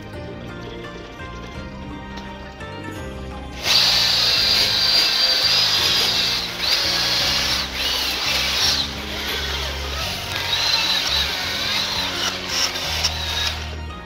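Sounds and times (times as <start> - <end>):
drill wire brush grinding metal: 3.6 - 14.0.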